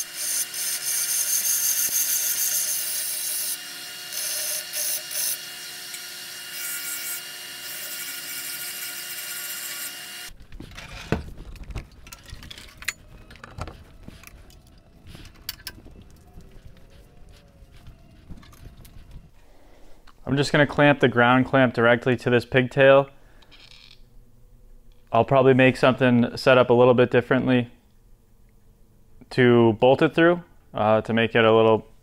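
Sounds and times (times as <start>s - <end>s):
belt sander grinding pipe: 0.0s - 19.4s.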